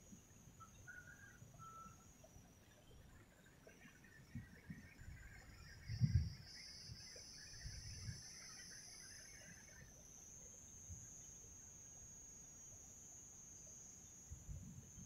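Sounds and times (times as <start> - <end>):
soft insect chirring: 0.0 - 15.0
high-pitched insect trilling: 5.0 - 15.0.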